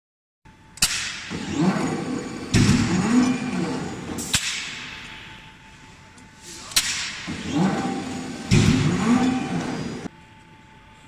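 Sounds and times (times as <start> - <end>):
wavering drive hum: 0.5 - 11.0
forging press bangs: 0.8 - 5.1, 6.7 - 10.1
heavy thud: 7.1 - 9.8.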